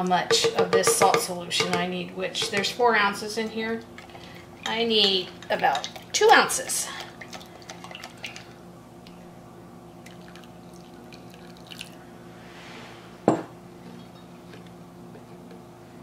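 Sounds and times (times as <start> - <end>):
liquid trickling into glass bowl: 10.0 - 12.0.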